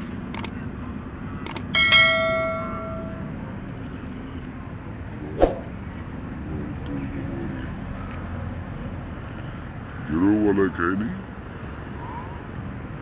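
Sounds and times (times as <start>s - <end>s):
bell-like notification ding: 1.6s - 3.3s.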